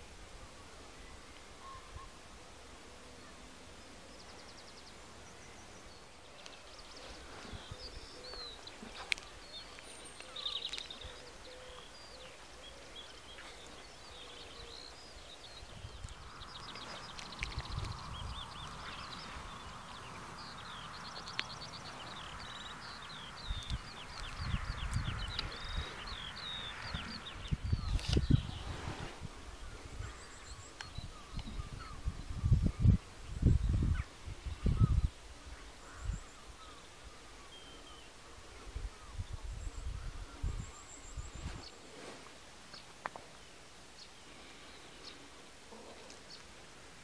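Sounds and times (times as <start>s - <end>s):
soft rushing wind: 0.0s - 47.0s
songbirds chirping and trilling: 0.0s - 47.0s
wind buffeting microphone: 15.4s - 36.3s, 38.6s - 41.7s.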